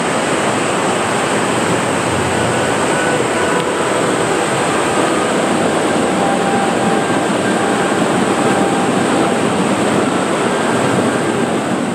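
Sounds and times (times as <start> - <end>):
white water rushing: 0.0 - 11.9.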